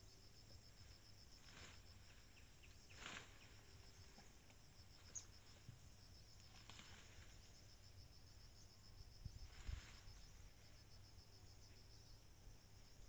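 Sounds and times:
high-pitched insect trill: 0.0s - 13.0s
soft rustles: 0.9s - 5.7s, 6.4s - 7.6s, 9.3s - 10.6s.

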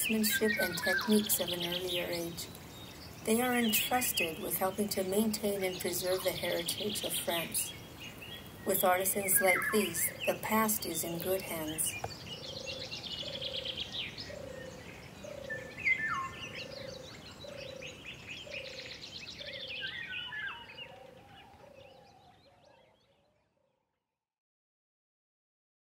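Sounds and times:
birds chirping and trilling: 0.0s - 23.7s.

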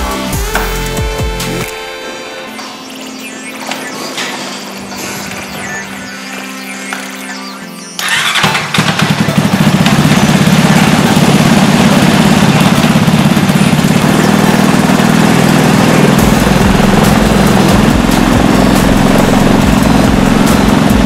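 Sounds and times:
paramotor engine running: 0.0s - 21.0s
deeper rumble: 9.3s - 21.0s.

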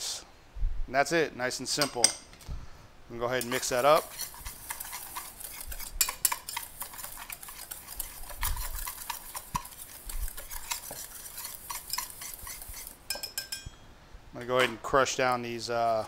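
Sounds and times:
wire whisk scraping metal bowl: 3.3s - 13.6s.

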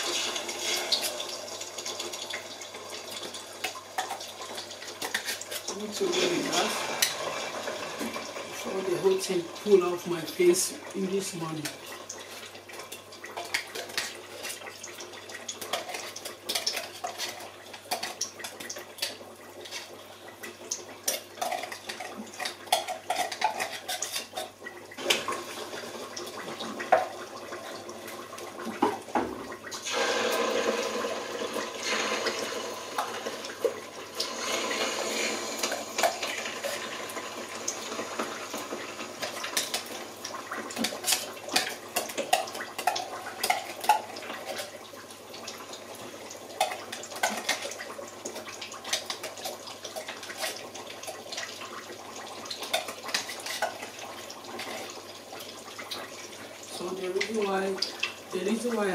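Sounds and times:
metal spoon scraping a tin can: 21.4s - 24.6s.

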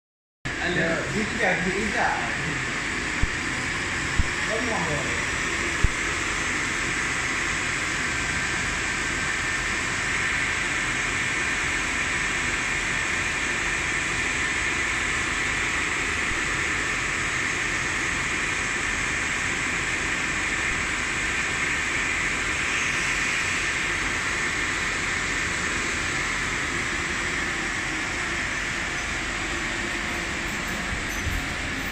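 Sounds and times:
spinning motor rotor rushing: 24.7s - 31.9s.

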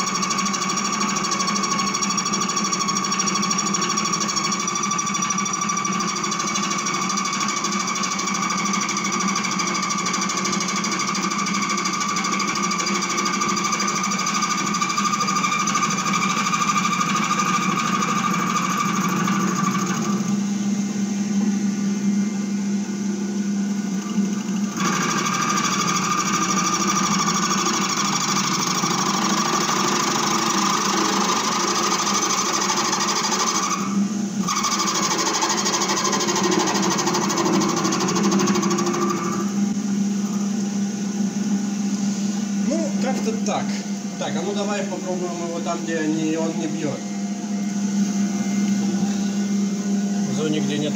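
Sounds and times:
lathe whining: 0.0s - 50.9s.

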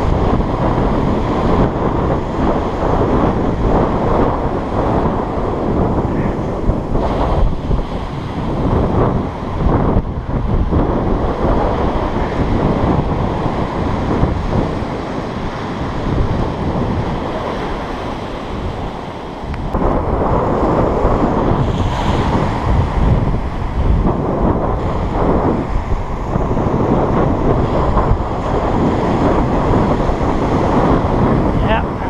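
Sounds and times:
small waves breaking on sand: 0.0s - 32.0s
wind buffeting microphone: 0.0s - 32.0s.

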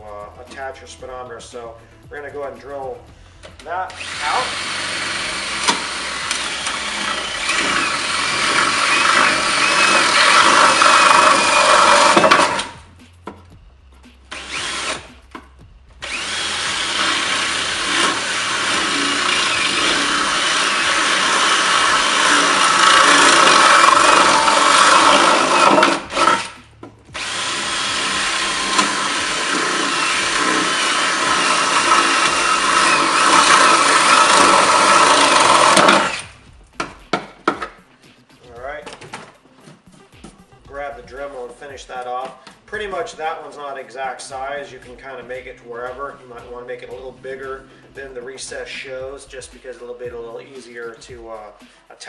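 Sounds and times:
cordless drill cutting fiberglass: 3.5s - 12.9s, 14.3s - 15.4s, 16.0s - 36.4s.

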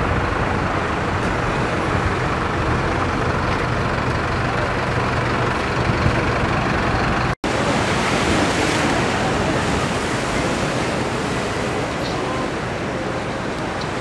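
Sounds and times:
ocean surf breaking on rocks: 7.4s - 14.0s.

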